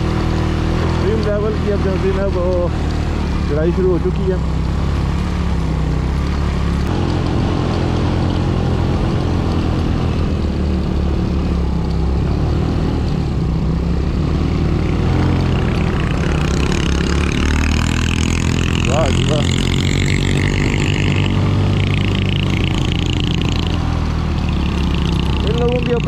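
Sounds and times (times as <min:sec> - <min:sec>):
motorcycle engine under load: 0:00.0 - 0:26.0.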